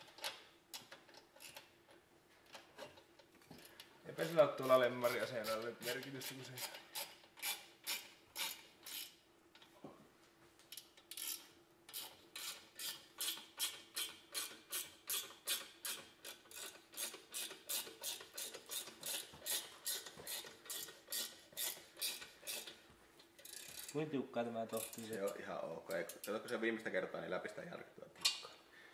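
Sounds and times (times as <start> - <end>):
ratcheting wrench clicking: 0.0 - 1.7, 4.7 - 9.2, 10.7 - 22.8, 23.4 - 24.0, 24.7 - 26.6.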